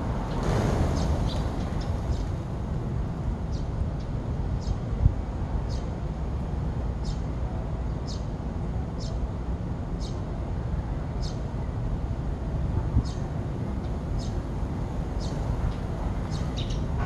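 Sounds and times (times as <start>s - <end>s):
steady low rumble: 0.0s - 5.6s
sparrows chirping: 7.0s - 7.3s, 8.1s - 8.3s, 11.2s - 11.4s, 13.0s - 14.4s, 15.1s - 17.0s.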